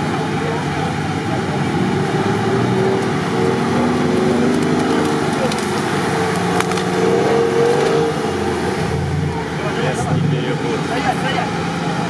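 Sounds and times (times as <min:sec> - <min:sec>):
buggy engine running hard: 0:00.0 - 0:12.0
tree cracking and splintering: 0:04.1 - 0:08.1.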